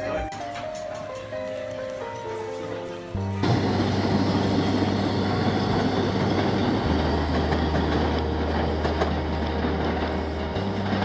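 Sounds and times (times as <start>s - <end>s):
train rumbling on tracks: 3.2s - 11.0s.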